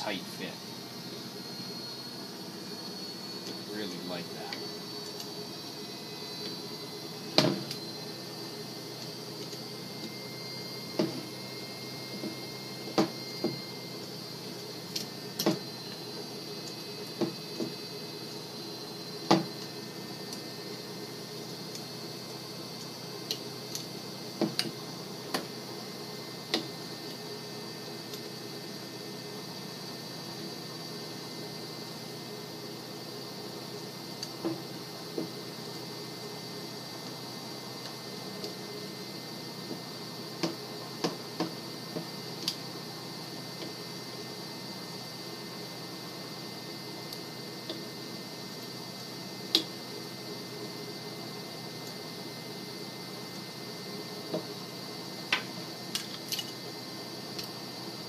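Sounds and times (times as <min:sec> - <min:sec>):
steady background hum: 0:00.0 - 0:58.0.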